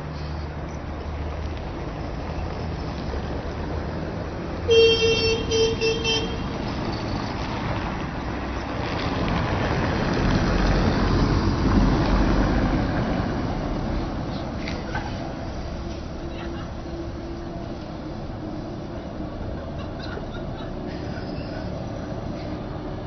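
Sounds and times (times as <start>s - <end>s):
street traffic: 0.0s - 23.0s
tram rumble: 0.0s - 23.0s
tram warning horn: 4.7s - 6.6s.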